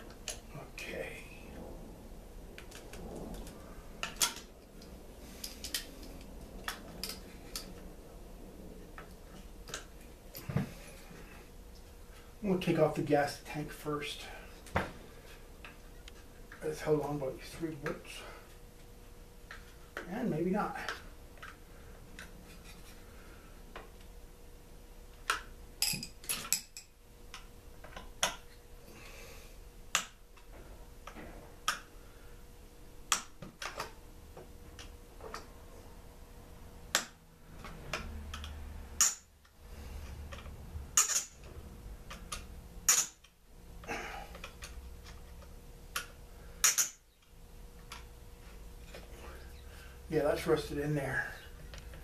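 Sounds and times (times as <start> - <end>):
hand tools clinking against metal: 41.0 - 41.4.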